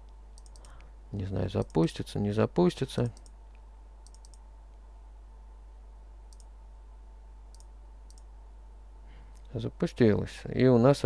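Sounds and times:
faint electrical hum: 0.0 - 11.0
computer mouse clicks: 0.4 - 0.9, 3.0 - 4.4, 6.3 - 6.5, 7.5 - 8.3.

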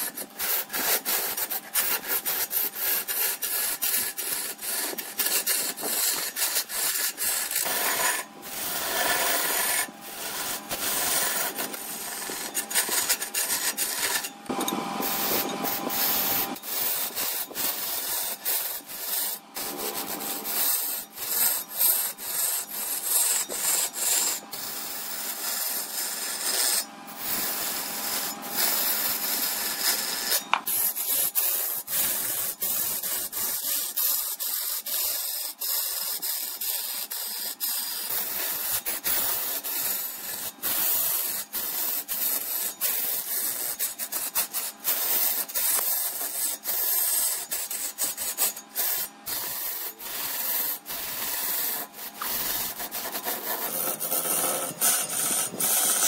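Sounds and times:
wood lathe scraping hiss: 0.0 - 56.0
faint steady whine: 6.8 - 31.2.

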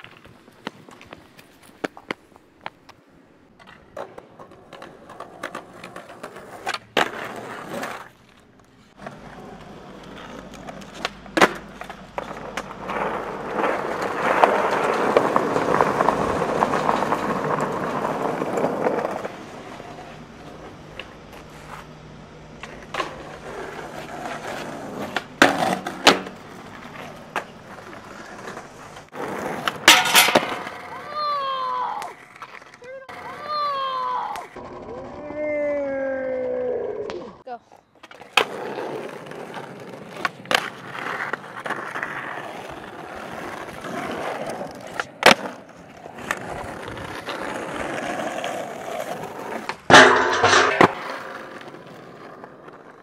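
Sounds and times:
skateboard clacking on ground: 0.0 - 35.5, 36.3 - 53.0
skateboard wheels rolling: 0.0 - 53.0.

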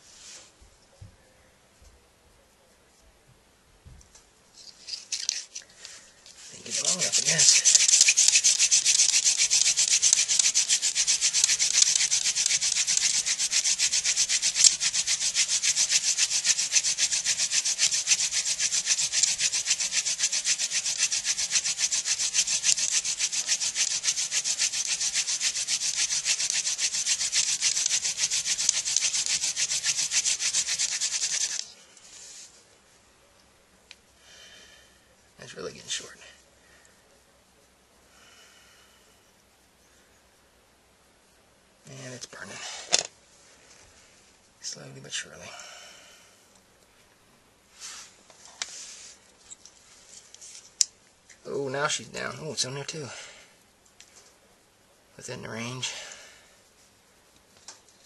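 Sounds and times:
wooden spindle rasping in socket: 6.6 - 31.7.

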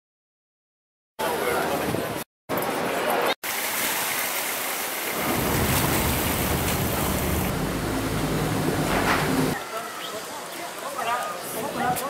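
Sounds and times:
water noise: 1.2 - 12.0
low engine rumble: 6.3 - 9.6.

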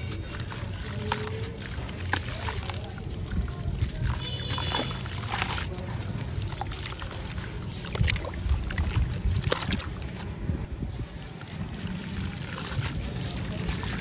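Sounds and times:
splashy crunches: 0.0 - 10.5, 11.3 - 14.0
hands squelching wet mud: 0.0 - 14.0.

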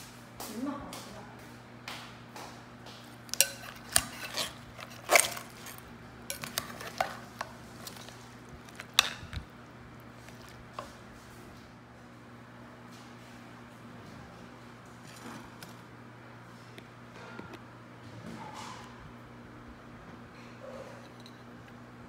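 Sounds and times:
steady low hum: 0.0 - 22.0
dishes and utensils clattering: 3.3 - 8.1.

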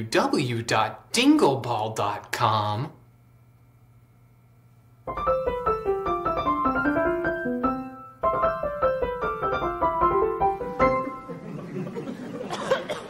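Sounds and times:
keyboard melody: 5.1 - 11.6.

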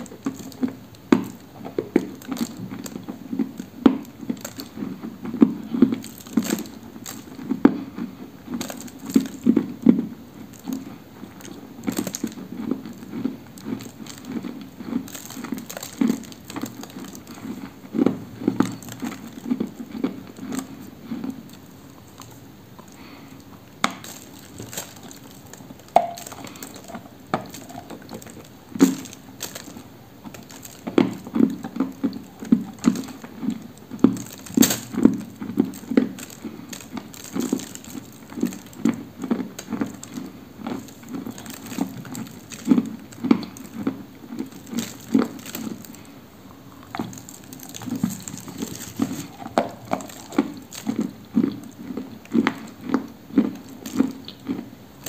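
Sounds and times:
chewing and crunching: 0.0 - 55.0.

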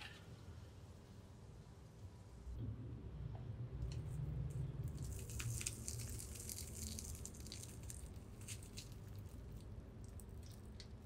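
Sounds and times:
crispy coating crackling: 4.9 - 11.0.

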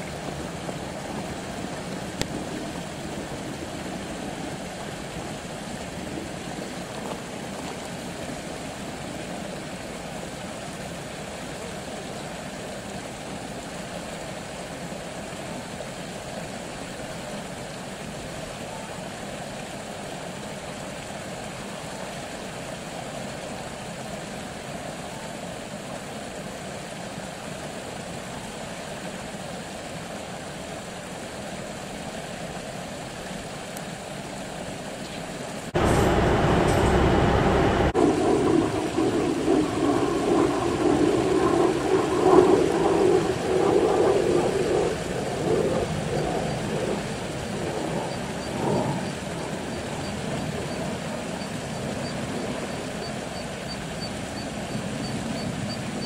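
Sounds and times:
distant diesel railcar engine drone: 35.8 - 40.9.

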